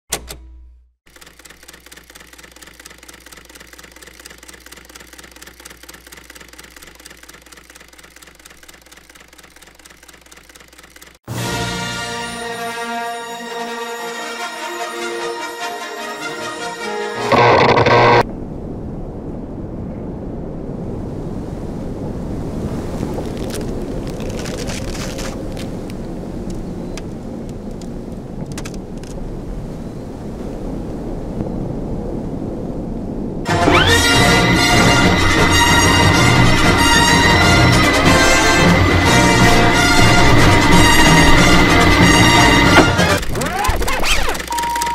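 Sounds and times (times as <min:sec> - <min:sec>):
rapid mechanical clicking: 0:01.1 - 0:11.2, 0:17.3 - 0:18.2, 0:40.5 - 0:44.9
sharp crackles: 0:17.3 - 0:18.2, 0:22.8 - 0:29.2, 0:43.0 - 0:44.9.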